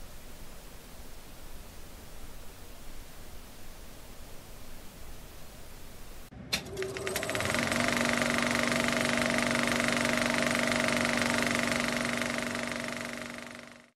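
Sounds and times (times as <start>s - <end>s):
projector motor hum: 6.3s - 13.9s
film projector clatter: 6.5s - 13.9s.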